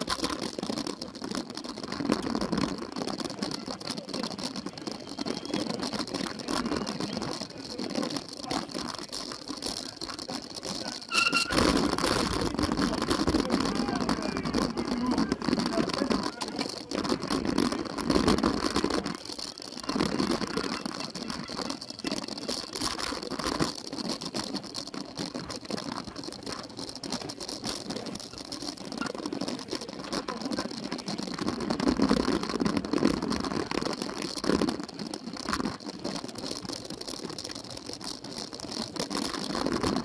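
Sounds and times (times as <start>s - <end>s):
bike chain and frame clattering: 0.0s - 40.0s
tyre noise on ground: 0.0s - 40.0s.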